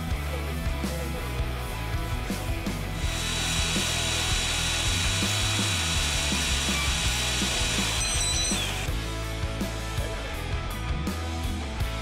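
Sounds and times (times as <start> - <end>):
background music with a beat: 0.0 - 12.0
power tool whining on wood: 3.0 - 8.9.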